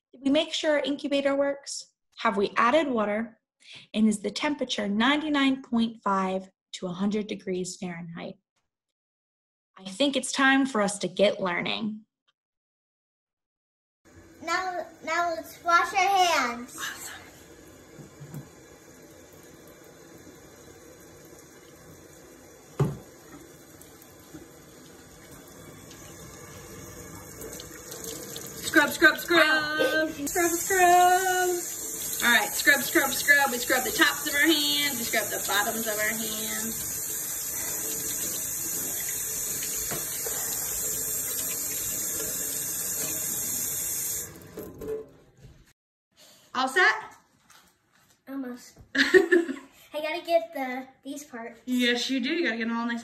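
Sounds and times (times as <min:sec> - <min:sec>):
faucet running into sink: 0:14.2 - 0:45.2
hands being rinsed: 0:16.8 - 0:45.1
tap running into steel sink: 0:17.9 - 0:18.6, 0:22.7 - 0:23.5, 0:39.6 - 0:40.6.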